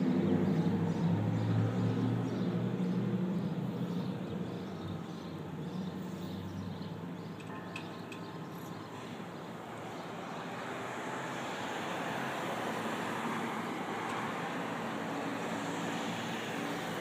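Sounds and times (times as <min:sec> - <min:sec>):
vehicle passing on street: 0:08.8 - 0:17.0.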